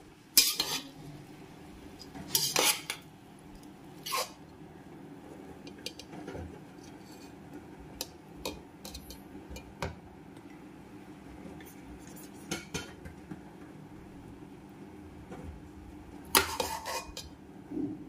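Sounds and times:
spoon scraping metal pot: 0.4s - 1.0s, 2.3s - 3.0s, 4.0s - 4.4s, 16.3s - 17.4s.

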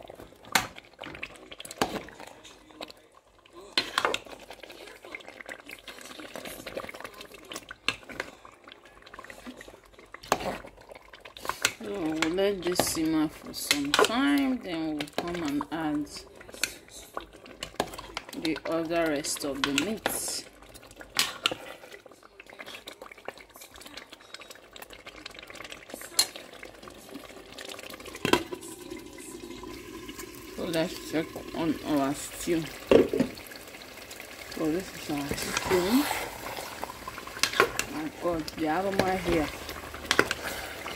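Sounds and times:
stew bubbling in a pot: 0.0s - 40.9s
knock on pot: 32.9s - 33.4s.

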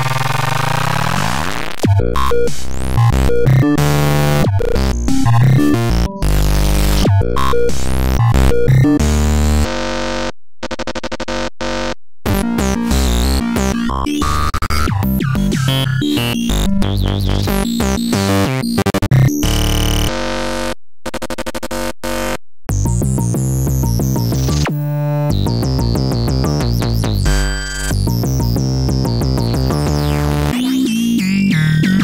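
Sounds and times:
synthesized electronic tones: 23.7s - 32.0s.

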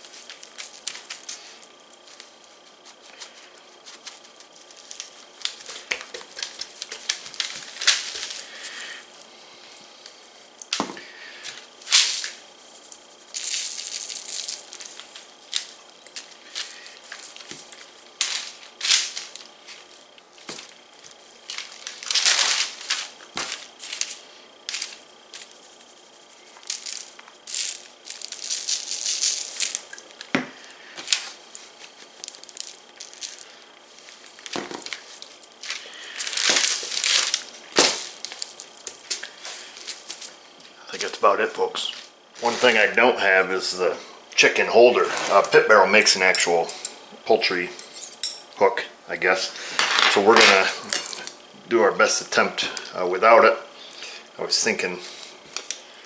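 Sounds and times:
seasoning shaker shaking: 0.0s - 8.7s, 11.9s - 30.2s
paper rustling and crinkling: 0.0s - 8.8s, 11.4s - 40.4s, 41.8s - 42.9s.

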